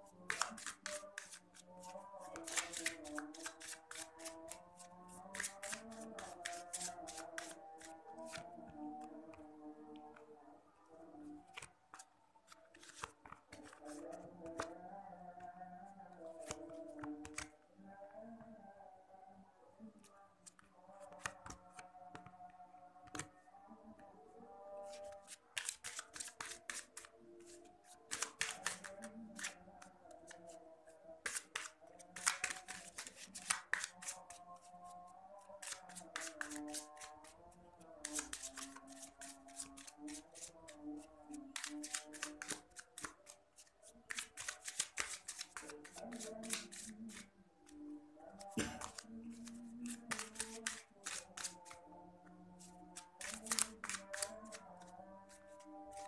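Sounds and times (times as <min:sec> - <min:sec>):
soft background music: 0:00.0 - 0:56.0
cards being shuffled: 0:00.2 - 0:09.4, 0:11.5 - 0:14.8, 0:16.3 - 0:17.5, 0:20.5 - 0:22.4, 0:24.9 - 0:30.6, 0:31.2 - 0:37.4, 0:38.0 - 0:47.3, 0:48.4 - 0:51.8, 0:52.6 - 0:54.9.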